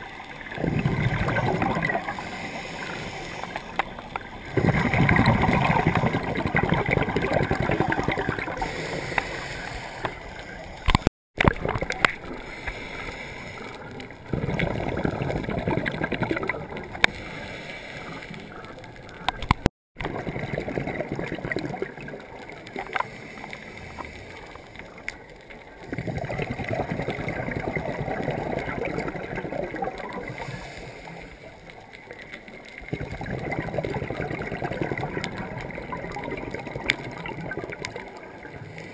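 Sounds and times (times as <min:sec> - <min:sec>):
gurgling exhaled bubbles: 0:00.0 - 0:38.9
diver breathing through regulator: 0:01.9 - 0:04.0, 0:08.4 - 0:10.6, 0:12.2 - 0:14.4, 0:17.0 - 0:18.6, 0:30.3 - 0:31.5
sharp clicks: 0:18.5 - 0:19.7.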